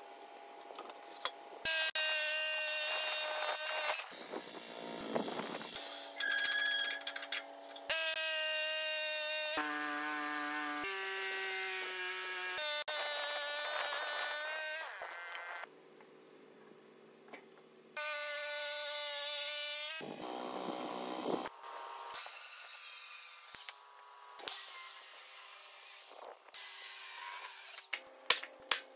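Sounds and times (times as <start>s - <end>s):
bandsaw mill whining hum: 1.6s - 6.4s, 18.0s - 28.5s
circular saw cutting wood: 1.7s - 6.2s, 7.9s - 15.7s, 18.0s - 27.9s.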